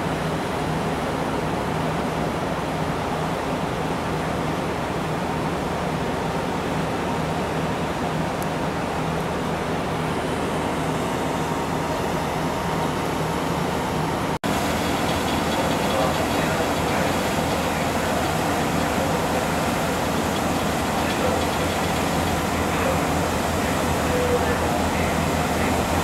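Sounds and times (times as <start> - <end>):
ferry engines droning: 8.9 - 26.0
wake water rushing: 10.8 - 26.0.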